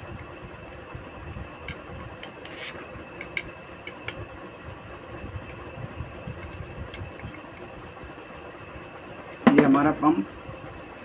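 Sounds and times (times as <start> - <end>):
steady background hum: 0.0 - 11.0
short scrape: 2.5 - 2.8.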